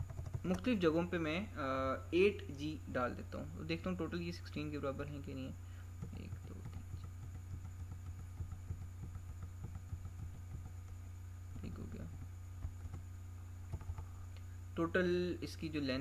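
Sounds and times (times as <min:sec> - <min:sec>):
low electrical hum: 0:00.0 - 0:16.0
keyboard keys clicking: 0:11.6 - 0:13.0, 0:13.7 - 0:14.1.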